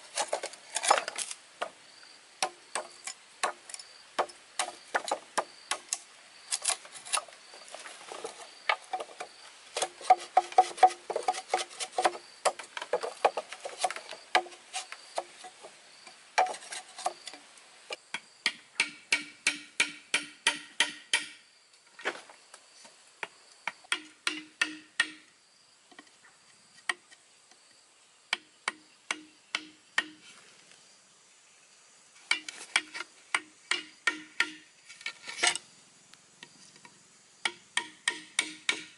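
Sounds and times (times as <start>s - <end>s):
machete chopping bamboo: 2.4s - 3.6s, 4.2s - 6.0s, 9.8s - 14.6s, 18.4s - 21.4s, 23.8s - 25.3s, 28.3s - 30.2s, 32.3s - 34.7s, 37.4s - 38.9s
mallet striking a chisel: 18.4s - 21.4s, 23.9s - 25.2s, 28.4s - 30.2s, 32.3s - 34.6s, 37.4s - 38.9s.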